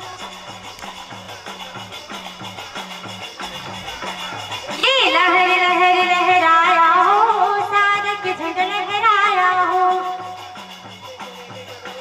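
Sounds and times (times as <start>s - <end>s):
repeating drum rhythm: 0.0s - 12.0s.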